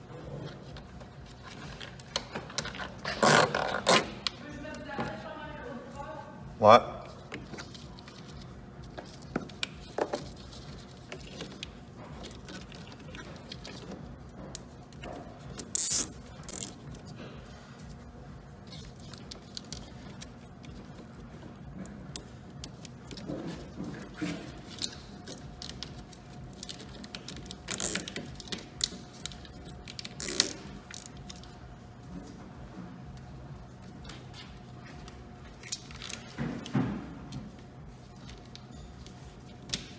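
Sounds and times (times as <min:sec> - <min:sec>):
cable ties ratcheting tight: 0:26.6 - 0:31.4.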